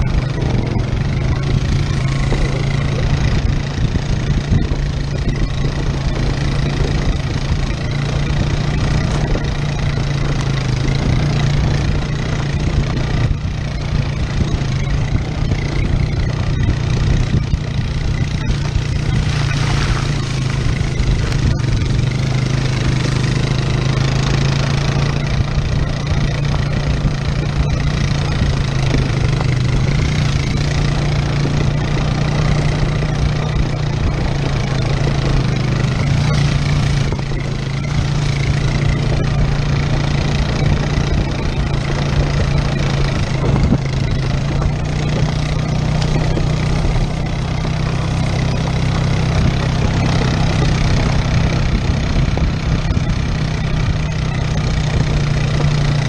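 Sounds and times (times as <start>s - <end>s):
atv engine droning: 0.0s - 56.0s
rough trail noise: 0.0s - 56.0s.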